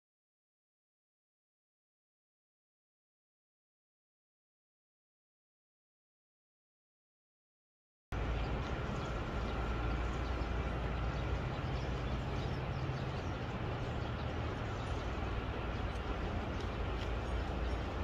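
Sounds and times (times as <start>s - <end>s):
distant traffic rumble: 8.2s - 18.0s.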